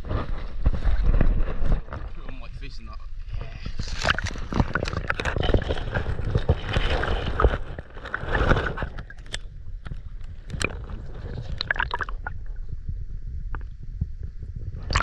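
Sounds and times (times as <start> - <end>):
deep rumble: 0.0 - 15.0
underwater water sloshing: 3.2 - 12.8.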